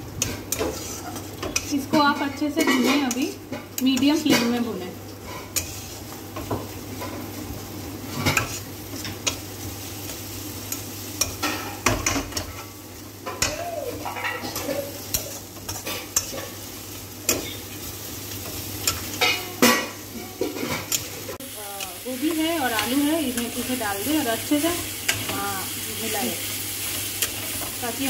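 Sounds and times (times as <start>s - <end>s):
masala sizzling in a pan: 0.0s - 28.0s
metal spatula scraping a pan: 0.2s - 3.4s, 5.2s - 7.3s, 8.1s - 9.4s, 13.3s - 16.7s.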